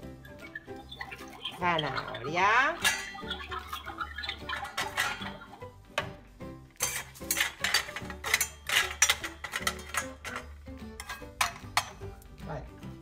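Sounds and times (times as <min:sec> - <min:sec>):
light background music: 0:00.0 - 0:13.0
spoon clinking on toy saucepans: 0:00.5 - 0:05.6, 0:06.8 - 0:12.0
toy vegetables knocking in pot: 0:00.6 - 0:06.2, 0:06.8 - 0:12.0.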